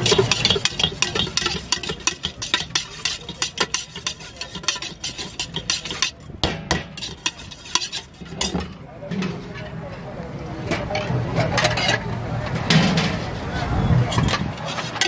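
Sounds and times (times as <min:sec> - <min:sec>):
spoon clinking and scraping bowl: 0:00.0 - 0:06.3, 0:06.9 - 0:08.6.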